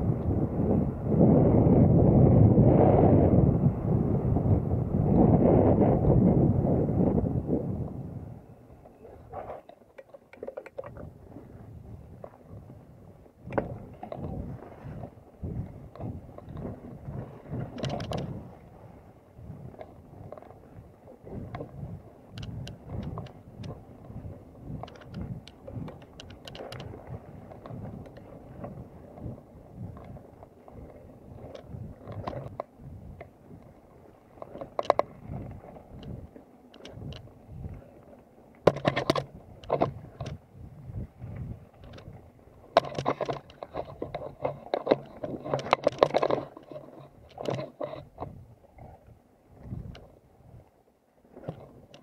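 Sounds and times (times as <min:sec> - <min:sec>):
wind on the microphone: 0:00.0 - 0:52.0
bike rattling and clicking: 0:09.9 - 0:11.2, 0:15.5 - 0:18.5, 0:21.4 - 0:33.6, 0:34.4 - 0:37.3, 0:38.6 - 0:40.4, 0:41.4 - 0:49.0, 0:51.4 - 0:52.0.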